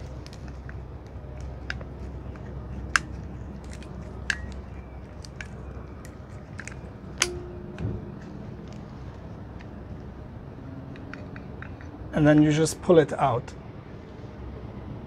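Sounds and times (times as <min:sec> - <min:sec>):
metal clicks and taps: 0:01.4 - 0:08.9, 0:10.9 - 0:12.0.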